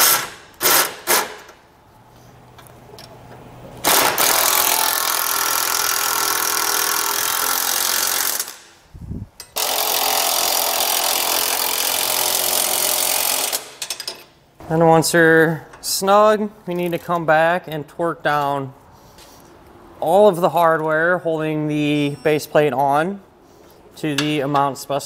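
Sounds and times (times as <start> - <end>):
cordless impact wrench: 0.0 - 1.6, 3.8 - 8.7, 9.6 - 14.0.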